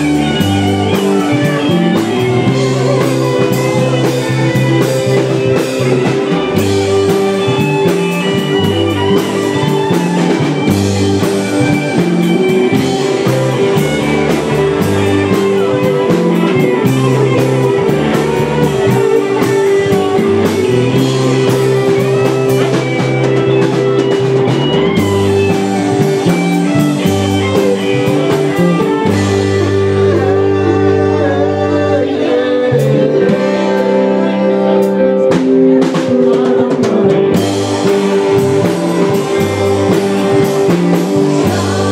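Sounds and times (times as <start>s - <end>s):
rock band playing: 0.0s - 41.9s
man singing into a microphone: 29.4s - 37.6s, 41.2s - 41.9s.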